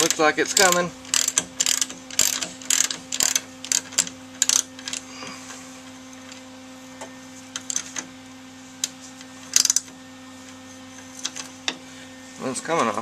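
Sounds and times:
ratchet wrench clicking: 0.0 - 5.0, 7.6 - 8.0, 9.5 - 9.9
steady low hum: 0.0 - 13.0.

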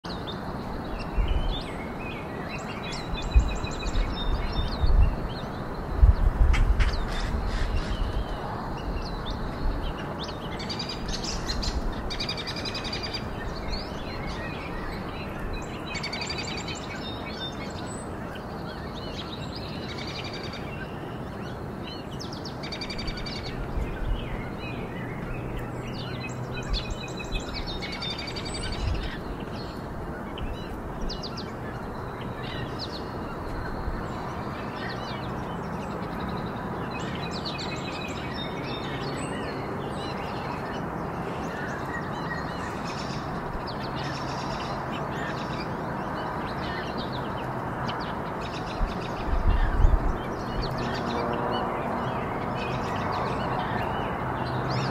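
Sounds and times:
songbirds chirping: 0.0 - 54.9
steady rushing noise: 0.8 - 17.3.

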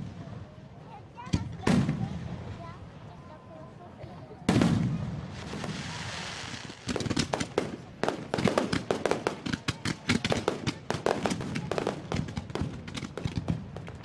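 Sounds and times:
fireworks cracks and bangs: 0.0 - 2.8, 4.4 - 14.0
fireworks fizzing hiss: 4.4 - 14.0.

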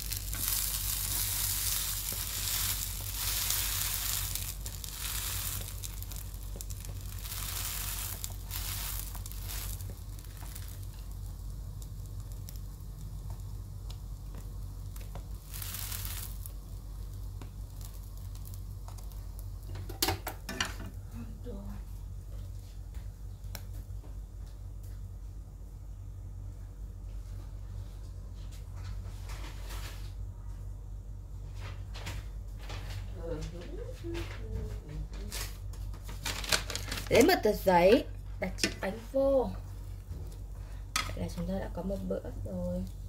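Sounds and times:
bread sizzling in a frying pan: 0.0 - 24.0, 35.3 - 43.0.

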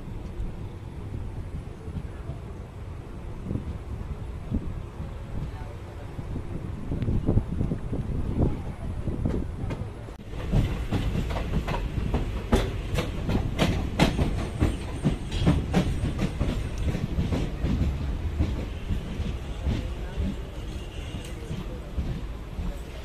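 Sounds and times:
train low rumble: 0.0 - 23.0
train wheels clicking over rail joints: 9.2 - 23.0.

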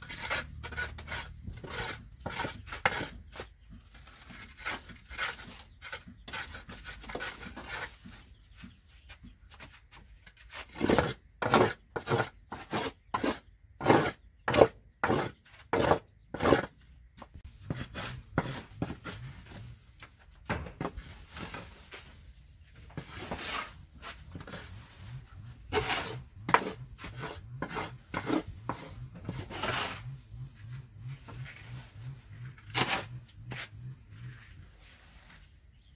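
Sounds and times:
board scraping concrete floor: 0.0 - 35.9
dustpan scooping rustle: 20.9 - 27.2, 29.2 - 35.8.

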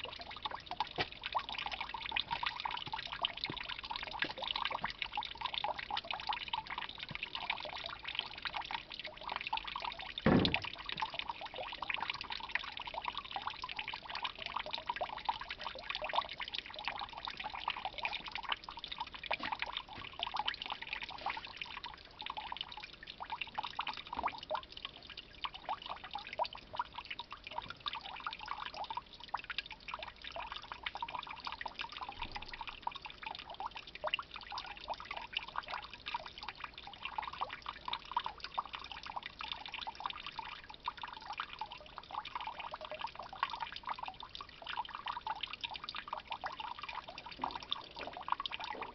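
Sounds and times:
juice trickling into tub: 0.0 - 48.9
sharp knock: 10.3 - 10.7.

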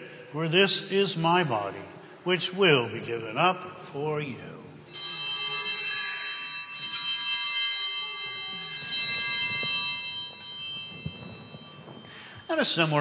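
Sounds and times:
altar bells ringing: 4.8 - 13.0.

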